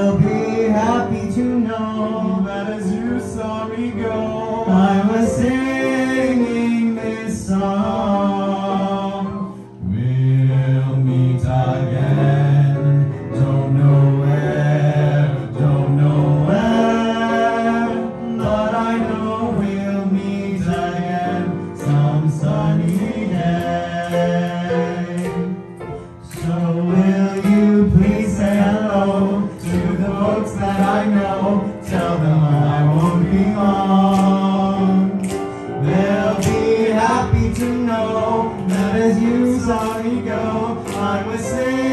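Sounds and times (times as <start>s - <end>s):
people singing into microphones: 0.0s - 41.9s.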